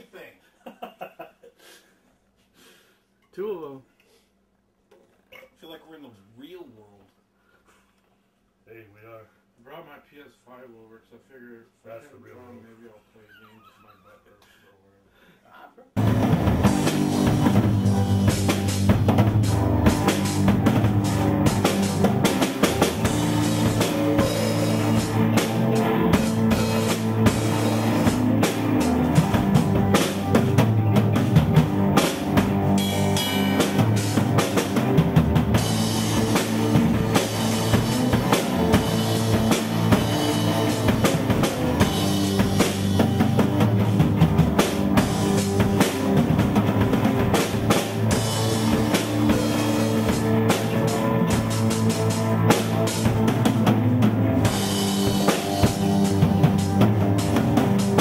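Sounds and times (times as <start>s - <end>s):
drum kit playing: 16.0s - 58.0s
low amplified string notes: 16.0s - 58.0s.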